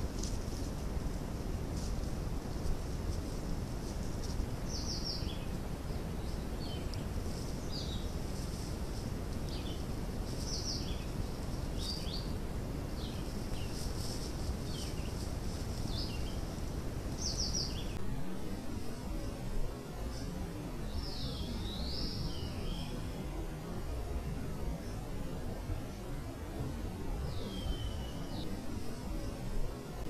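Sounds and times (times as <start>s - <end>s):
low outdoor background rumble: 0.0s - 30.0s
small bird chirping: 9.4s - 12.4s, 13.0s - 18.0s.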